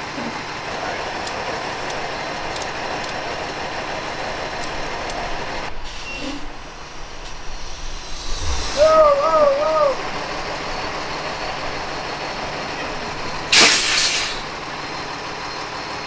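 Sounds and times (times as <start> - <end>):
diesel truck engine idling: 0.0 - 16.0
loud wavering pitched sound: 7.5 - 11.2.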